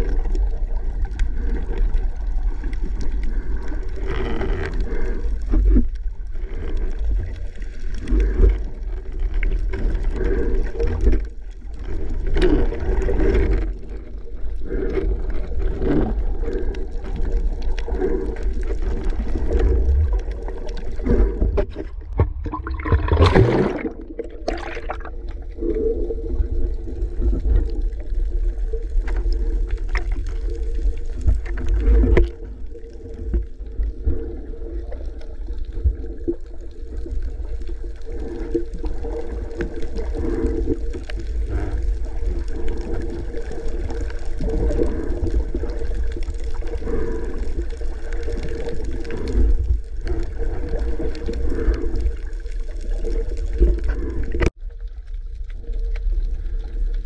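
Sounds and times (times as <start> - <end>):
low underwater rumble: 0.0 - 57.0
underwater sloshing and gurgling: 0.0 - 57.0
rush of water: 14.9 - 36.2.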